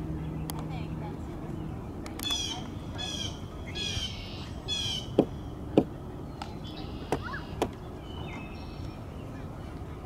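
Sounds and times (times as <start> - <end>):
bird calling: 2.1 - 9.6.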